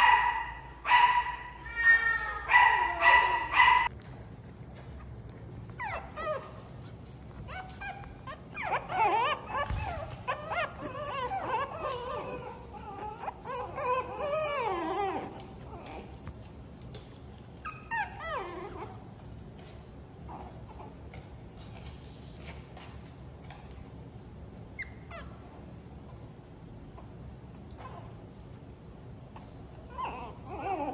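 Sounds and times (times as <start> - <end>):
puppies whining and whimpering: 5.6 - 16.2, 17.5 - 19.4, 29.3 - 30.9.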